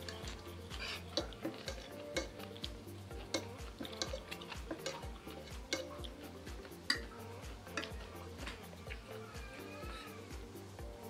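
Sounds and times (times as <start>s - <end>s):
cutlery clinking on plate: 0.0s - 8.7s
background music with ticking beat: 0.0s - 11.0s.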